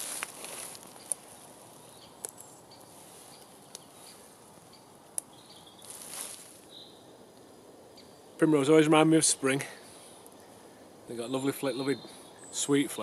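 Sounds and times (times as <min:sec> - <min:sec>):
faint bird chirps: 0:00.9 - 0:07.1, 0:07.9 - 0:08.5, 0:09.4 - 0:13.0
small sharp clicks: 0:03.4 - 0:03.9.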